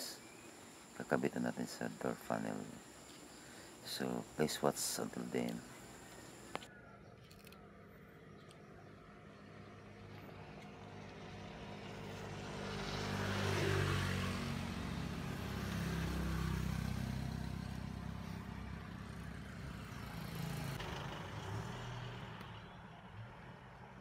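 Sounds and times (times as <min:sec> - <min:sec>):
vehicle engine passing: 0:09.1 - 0:23.6.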